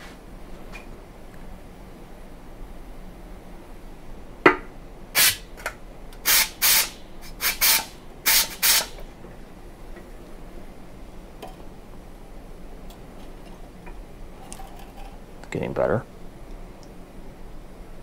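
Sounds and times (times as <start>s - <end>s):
short hissing spray blasts: 5.2s - 5.4s, 6.2s - 9.0s.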